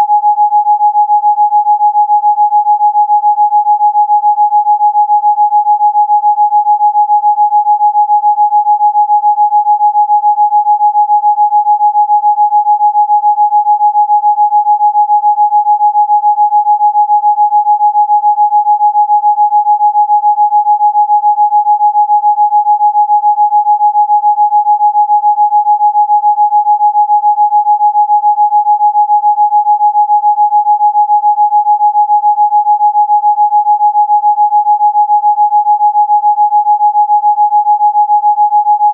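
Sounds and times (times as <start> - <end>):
steady electronic sine tone: 0.0 - 38.9.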